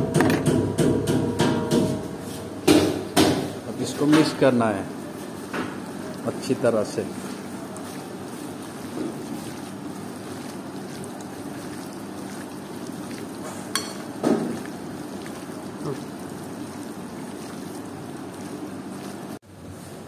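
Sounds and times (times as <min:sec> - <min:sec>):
knocks against steel bowl: 0:00.1 - 0:02.0
hand squishing wet marinade: 0:03.8 - 0:19.4.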